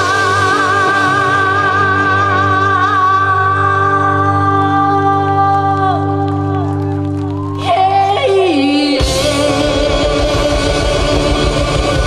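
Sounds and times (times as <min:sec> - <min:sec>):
rock band sustained chord: 0:09.0 - 0:12.0.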